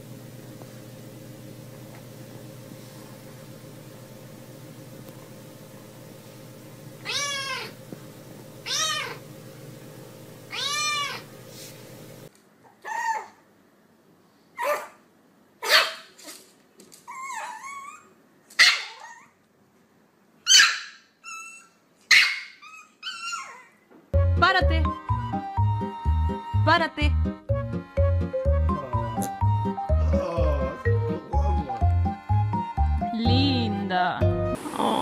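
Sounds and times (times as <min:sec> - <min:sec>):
steady hum: 0:00.0 - 0:12.3, 0:27.5 - 0:35.0
kitten meowing: 0:07.0 - 0:07.8, 0:08.6 - 0:09.2, 0:10.5 - 0:11.3
puppy whining: 0:07.0 - 0:07.8, 0:08.7 - 0:09.2, 0:10.5 - 0:11.3, 0:12.6 - 0:13.4, 0:17.0 - 0:19.4, 0:20.5 - 0:23.9
puppy yapping: 0:07.0 - 0:07.8, 0:08.7 - 0:09.2, 0:10.5 - 0:11.3, 0:12.7 - 0:13.4, 0:14.6 - 0:15.0, 0:15.6 - 0:16.4, 0:17.1 - 0:19.4, 0:20.4 - 0:23.8.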